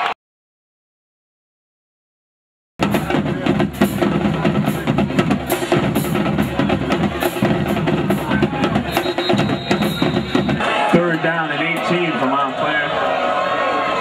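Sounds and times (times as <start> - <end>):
drum-heavy music: 2.8 - 12.0.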